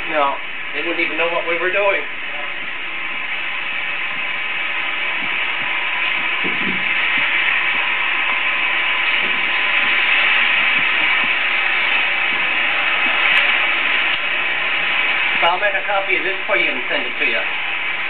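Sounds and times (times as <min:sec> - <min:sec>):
film projector whirring: 0:00.0 - 0:18.0.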